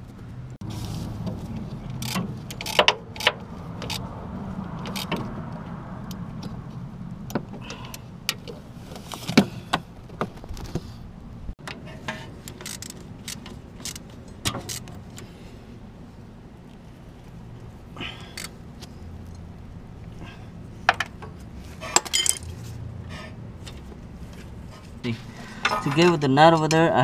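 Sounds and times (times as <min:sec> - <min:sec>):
ratchet clicking on bolt: 0:02.0 - 0:04.0.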